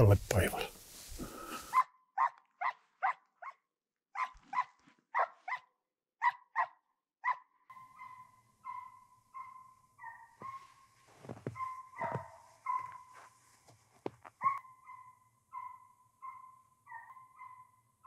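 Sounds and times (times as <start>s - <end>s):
hound barking and baying: 1.7s - 10.8s, 11.4s - 13.3s, 14.4s - 17.8s.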